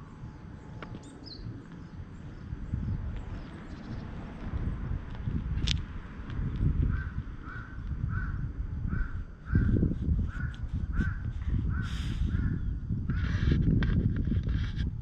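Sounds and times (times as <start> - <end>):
wind rumble on microphone: 0.0 - 15.0
bird calling: 6.9 - 12.7.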